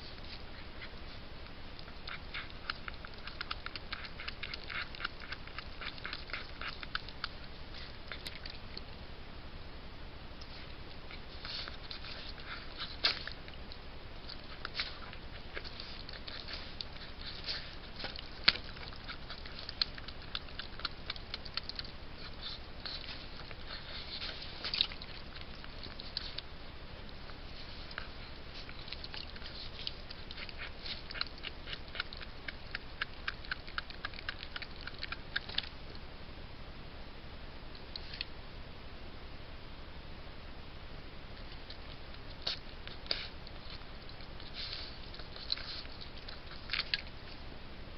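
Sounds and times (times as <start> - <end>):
animal chewing and tearing carcass: 0.0 - 8.9, 10.4 - 36.0, 41.4 - 47.4
steady hiss: 35.7 - 47.9.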